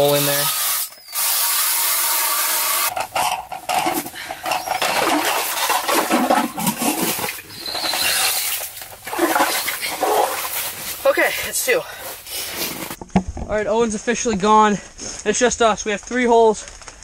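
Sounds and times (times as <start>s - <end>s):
water and slush sloshing: 4.6s - 13.0s.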